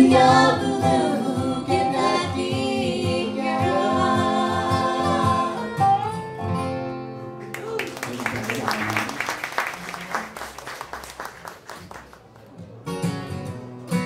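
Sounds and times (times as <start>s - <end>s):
voices singing in harmony: 0.0s - 5.9s
bluegrass band playing: 0.0s - 7.8s, 10.9s - 14.0s.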